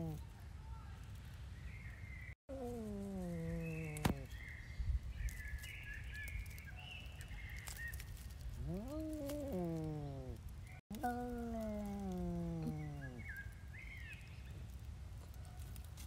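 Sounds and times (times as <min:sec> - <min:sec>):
cat yowling: 0:00.0 - 0:00.2, 0:02.5 - 0:04.3, 0:08.6 - 0:13.3
small birds chirping: 0:00.0 - 0:00.2, 0:01.4 - 0:14.9.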